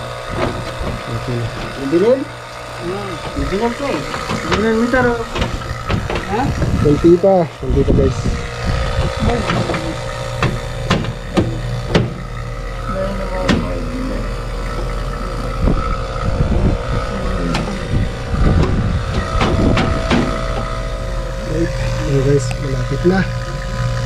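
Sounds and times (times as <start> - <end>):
air conditioner humming: 0.0 - 24.0
sharp clicks and knocks: 0.3 - 1.8, 2.5 - 6.8, 9.4 - 12.5, 13.4 - 13.8, 18.4 - 20.8.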